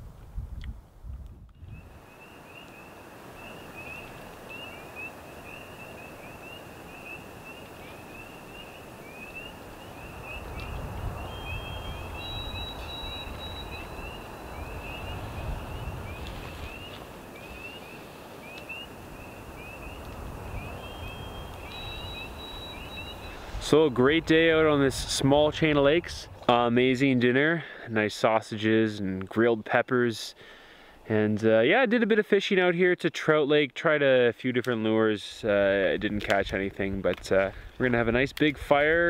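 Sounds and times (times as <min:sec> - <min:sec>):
frogs peeping: 0:01.8 - 0:23.5.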